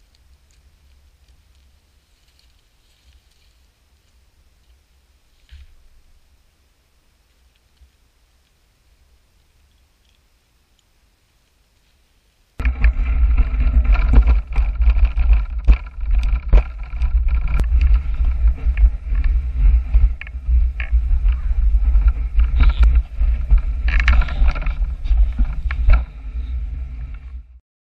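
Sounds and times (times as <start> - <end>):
bicycle rattles and knocks: 12.6 - 27.6
wind rumble on microphone: 12.6 - 27.6.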